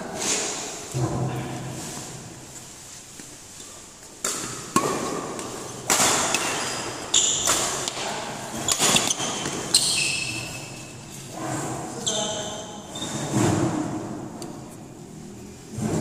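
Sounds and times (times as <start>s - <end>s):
rackets striking shuttlecock: 4.2s - 8.0s, 8.6s - 10.4s
shoes squeaking on court: 6.4s - 7.9s, 8.5s - 11.3s, 12.0s - 13.4s.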